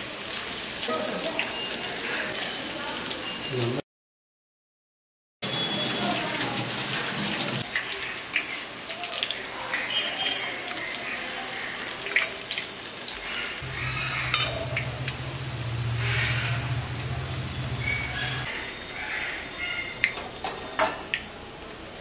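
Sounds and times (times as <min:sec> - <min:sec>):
fritters sizzling in hot oil: 0:00.0 - 0:03.7, 0:05.6 - 0:19.1
sharp crackles: 0:11.1 - 0:17.0
low hum: 0:13.6 - 0:18.5.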